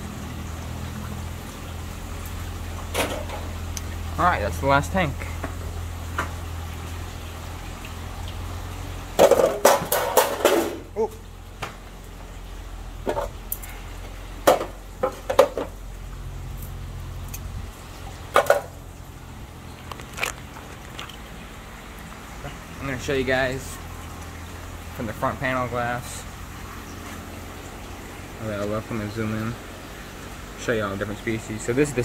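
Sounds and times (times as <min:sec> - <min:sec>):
hard objects clattering: 0:09.2 - 0:10.9, 0:19.8 - 0:21.3.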